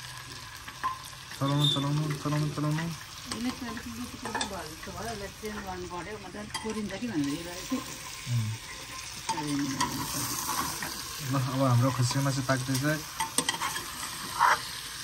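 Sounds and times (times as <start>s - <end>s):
meat sizzling in hot oil: 0.0s - 15.0s
steel ladle scraping a pot: 0.7s - 2.8s, 6.5s - 11.2s, 12.7s - 14.8s.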